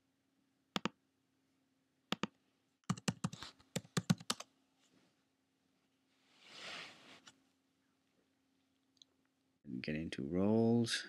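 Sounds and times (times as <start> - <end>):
computer keyboard typing: 2.2 - 4.5.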